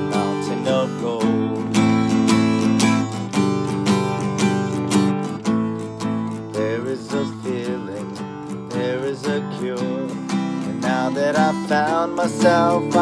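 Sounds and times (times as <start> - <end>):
man singing: 0.0 - 2.4, 6.2 - 13.0
acoustic guitar strumming: 0.0 - 13.0.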